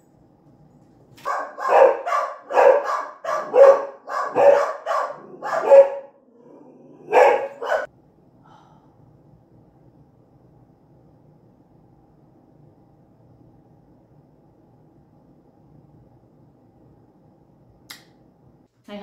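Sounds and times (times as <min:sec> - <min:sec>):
dog barking indoors: 0:01.2 - 0:07.9.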